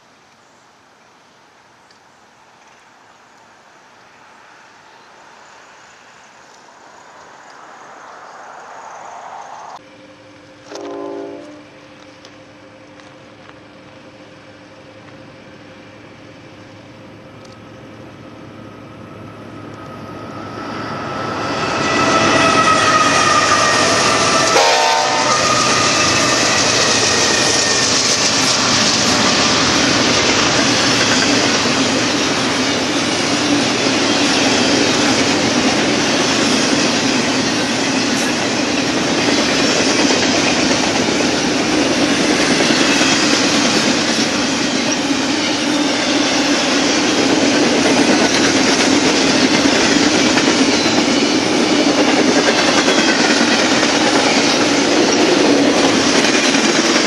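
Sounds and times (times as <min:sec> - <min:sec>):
train wheels rolling on rails: 0:01.8 - 0:57.0
diesel locomotives passing: 0:02.9 - 0:57.0
locomotive horn blast: 0:10.6 - 0:11.8, 0:21.6 - 0:26.9.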